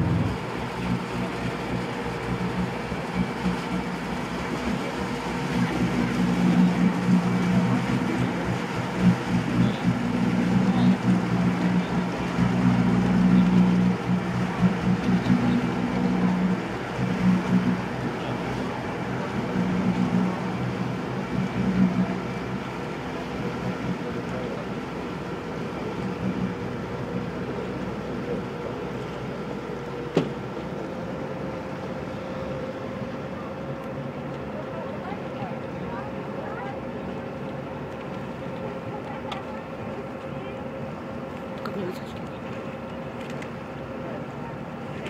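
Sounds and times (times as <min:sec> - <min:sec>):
water wash noise: 0:00.0 - 0:23.9
boat engine running: 0:00.0 - 0:45.0.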